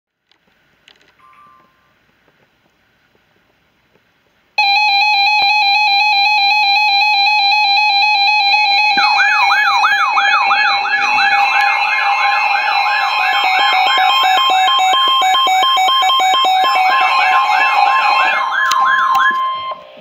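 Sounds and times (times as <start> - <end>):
pulsing electronic alarm tone: 4.6 - 20.0
sweeping whoop alarm: 4.6 - 20.0.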